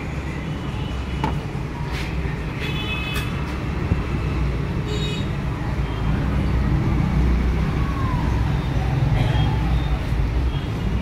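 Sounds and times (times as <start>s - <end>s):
low rumble of vehicle traffic: 0.0s - 11.0s.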